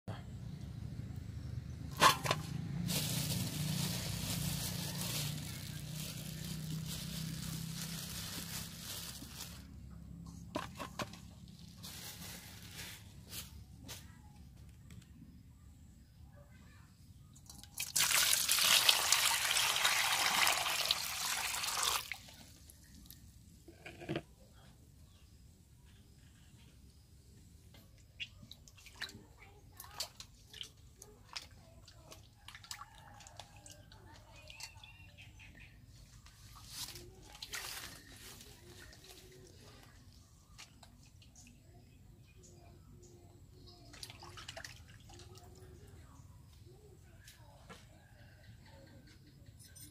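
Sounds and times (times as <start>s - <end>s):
water sloshing and splashing: 28.2s - 34.0s, 43.8s - 45.8s.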